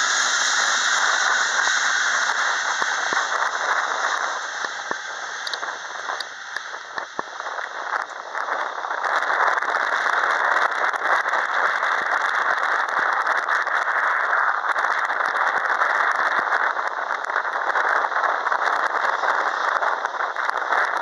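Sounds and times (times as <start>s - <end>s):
jet engines at take-off thrust: 0.0s - 21.0s.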